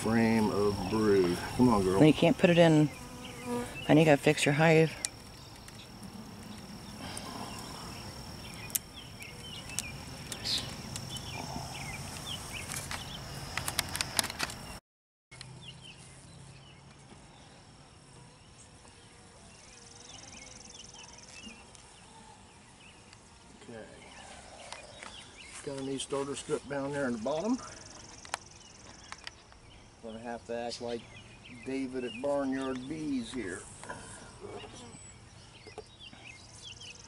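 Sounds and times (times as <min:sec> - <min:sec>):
honeybees buzzing: 0:00.0 - 0:14.8.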